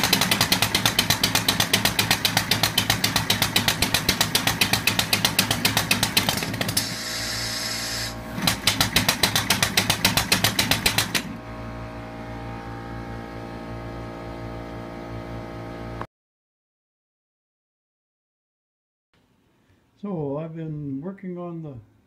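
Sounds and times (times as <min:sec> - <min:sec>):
air engine puffing: 0:04.6 - 0:11.2
air hiss: 0:06.8 - 0:08.3
low hum: 0:11.3 - 0:16.1.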